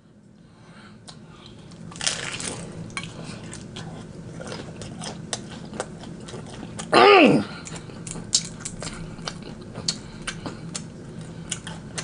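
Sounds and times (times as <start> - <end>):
chewing with crackling clicks: 1.0 - 6.9, 7.5 - 12.0
crunchy bite into fried food: 1.9 - 3.2.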